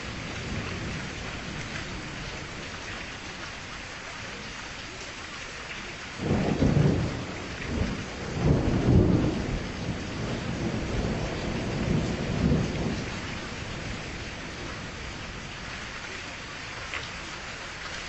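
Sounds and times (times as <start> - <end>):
steady rain: 0.0 - 18.0
thunder rumbling: 6.2 - 15.6.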